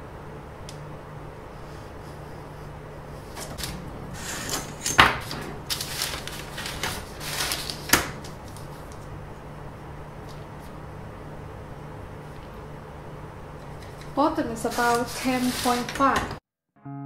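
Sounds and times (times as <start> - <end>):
faint steady hum: 0.0 - 16.4
paper rustling: 3.4 - 9.1, 14.6 - 16.2.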